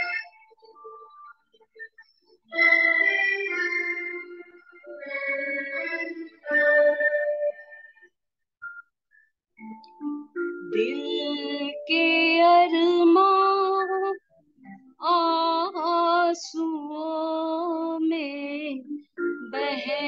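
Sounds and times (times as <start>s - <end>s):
elderly woman singing: 10.8s - 14.2s, 15.0s - 18.8s, 19.4s - 20.0s.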